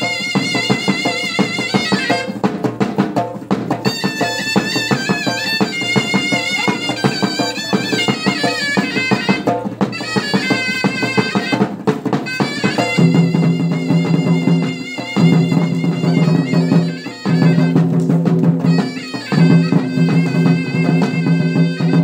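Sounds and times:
reedy shehnai melody: 0.0s - 2.5s, 3.8s - 18.0s, 18.6s - 22.0s
fast drumming: 0.0s - 22.0s.

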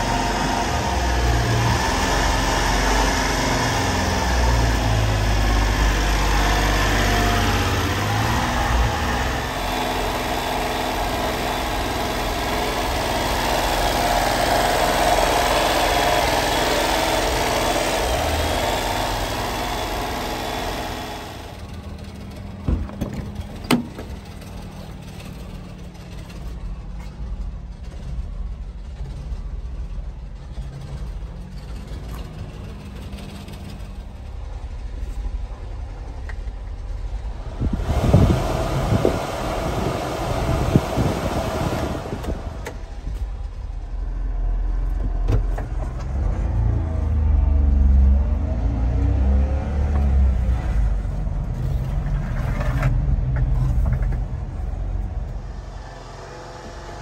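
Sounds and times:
small engine idling: 3.8s - 28.9s.

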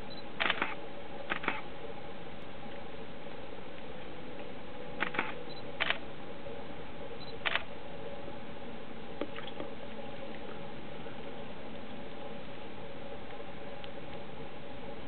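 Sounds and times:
faint low hum: 0.0s - 15.0s
short sharp clicks: 0.4s - 1.6s, 5.0s - 6.0s.

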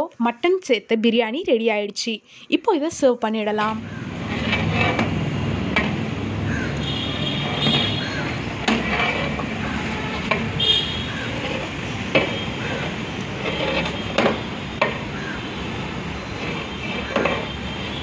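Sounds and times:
ladle stirring rice in metal pot: 3.9s - 6.1s, 7.1s - 18.0s.

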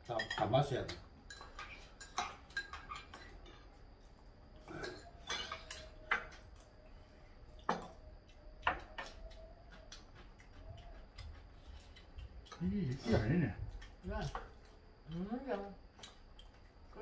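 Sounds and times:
utensils clinking on ceramic bowls: 0.0s - 3.4s, 4.7s - 6.5s.

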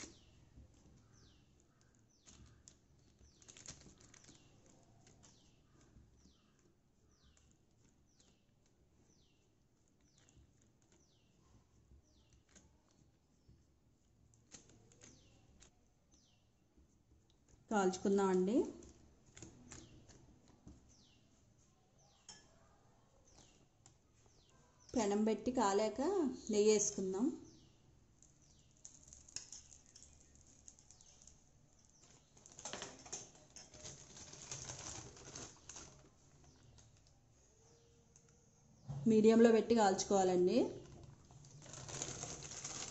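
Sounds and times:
bird chirping: 0.0s - 13.6s, 14.8s - 16.6s, 20.8s - 25.2s, 26.3s - 39.5s
plastic sheet clicking and rustling: 0.0s - 16.4s, 18.5s - 21.2s, 27.5s - 38.4s, 40.7s - 42.9s.

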